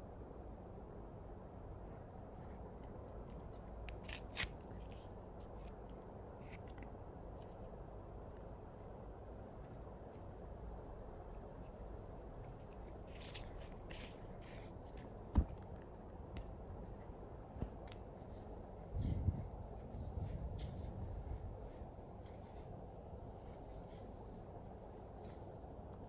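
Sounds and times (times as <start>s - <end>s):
soft rustles: 11.3s - 16.0s, 17.5s - 26.0s.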